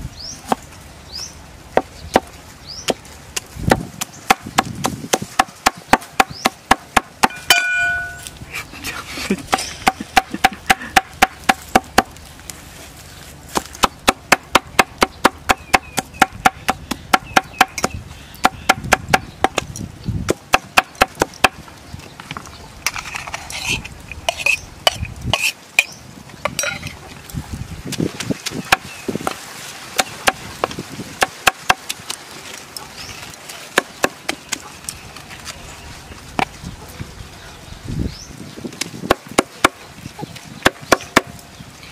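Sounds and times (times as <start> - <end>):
cleaver chopping on wooden board: 2.9 - 8.2, 9.5 - 12.1, 13.5 - 19.7, 20.3 - 21.6, 28.6 - 29.4, 30.0 - 32.0, 33.7 - 34.6, 38.8 - 39.8, 40.6 - 41.3.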